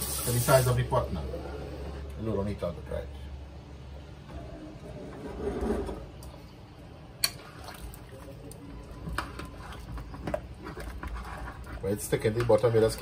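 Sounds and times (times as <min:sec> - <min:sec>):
thick liquid sloshing: 0:07.4 - 0:13.0
spoon stirring and scraping pot: 0:09.0 - 0:13.0.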